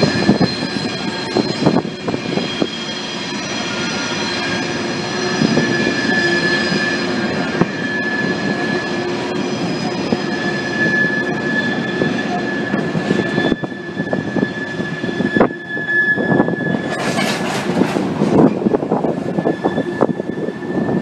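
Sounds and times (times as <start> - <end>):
high-pitched wheel squeal: 0.0 - 21.0
train wheels clacking: 16.7 - 20.2.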